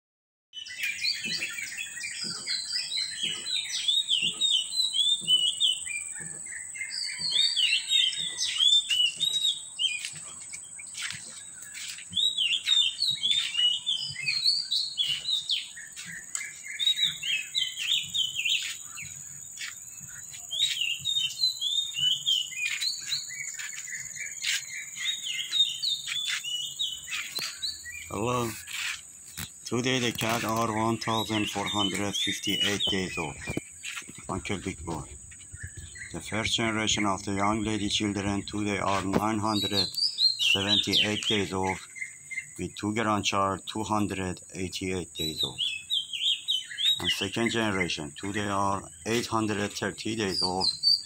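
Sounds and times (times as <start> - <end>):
birds chirping: 0.5 - 51.0.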